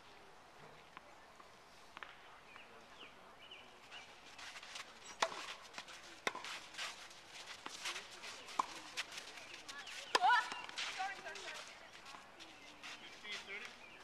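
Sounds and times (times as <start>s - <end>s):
shoes scuffing on court: 4.3s - 13.8s
tennis ball struck by rackets: 5.2s - 5.6s, 6.2s - 6.6s, 8.5s - 8.8s.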